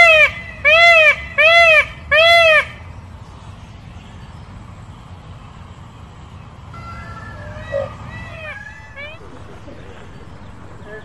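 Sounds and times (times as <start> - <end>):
peacock honking calls: 0.0 - 3.1, 6.7 - 11.0.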